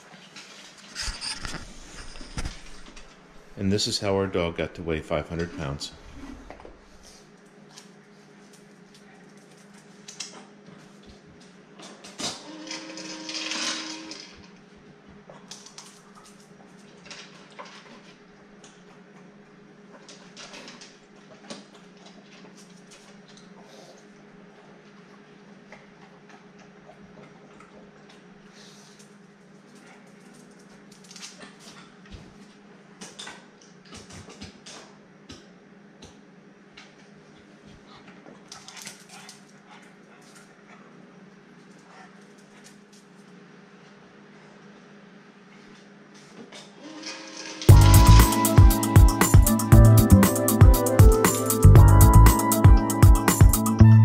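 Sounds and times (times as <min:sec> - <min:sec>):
treat dispenser humming and rattling: 0:12.0 - 0:14.6, 0:46.8 - 0:49.3.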